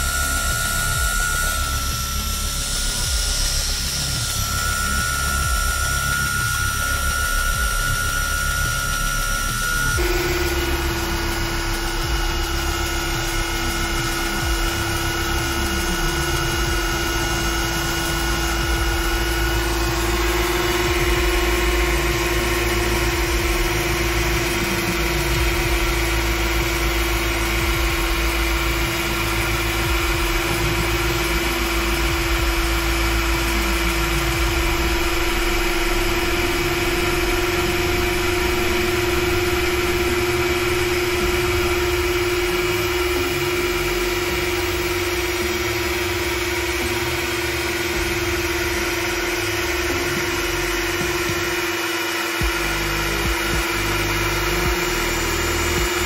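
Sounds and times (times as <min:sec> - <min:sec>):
rising and falling machine tones: 0:00.0 - 0:56.0
router spindle whine: 0:00.0 - 0:56.0.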